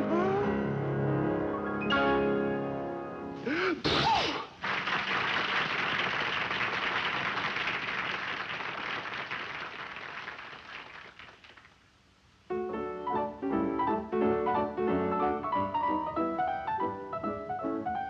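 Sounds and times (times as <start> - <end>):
piano playing lively tune: 0.0 - 3.4, 12.5 - 18.0.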